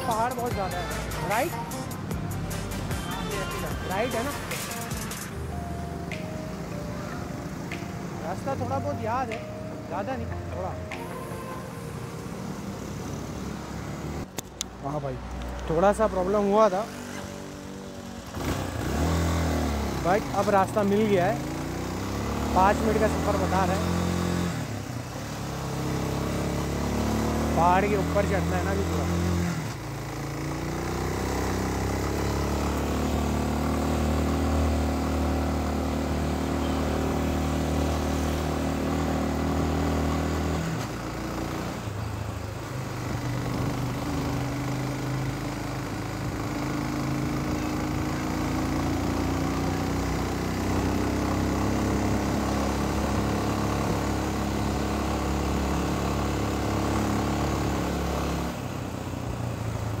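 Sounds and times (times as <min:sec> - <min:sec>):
wind and road noise: 0:00.0 - 1:00.0
motorcycle engine under throttle: 0:18.0 - 0:42.0, 0:43.0 - 1:00.0.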